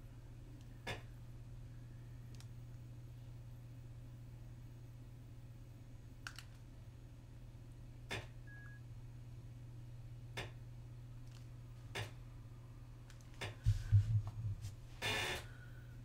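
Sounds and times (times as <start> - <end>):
low electrical hum: 0.0 - 16.0
faint short beep: 8.5 - 8.8.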